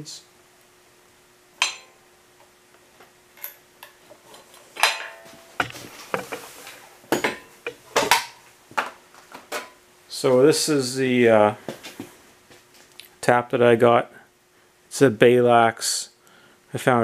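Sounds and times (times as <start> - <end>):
metallic clink: 1.6 - 2.0, 4.8 - 5.8
ringing metal clank: 1.6 - 2.0, 4.8 - 5.8
metal knocks: 4.8 - 6.4.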